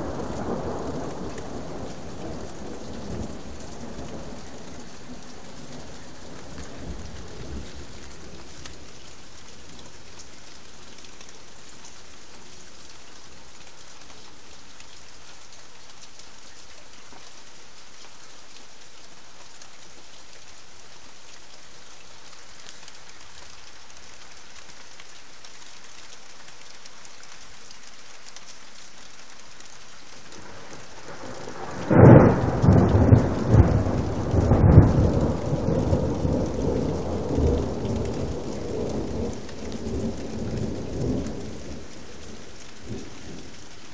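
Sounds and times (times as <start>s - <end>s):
rumbling thunderclap: 0.0s - 8.6s, 30.4s - 43.6s
steady rain hiss: 0.0s - 43.9s.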